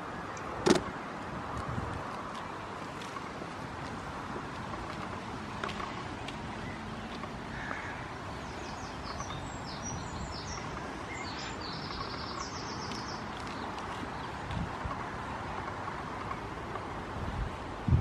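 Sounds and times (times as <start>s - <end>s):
steady rush of outdoor noise: 0.0s - 18.0s
small birds chirping: 2.2s - 14.8s.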